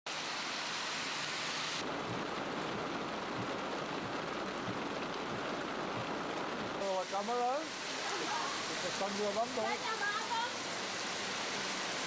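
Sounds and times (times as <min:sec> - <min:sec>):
heavy rain pouring: 0:00.1 - 0:12.0.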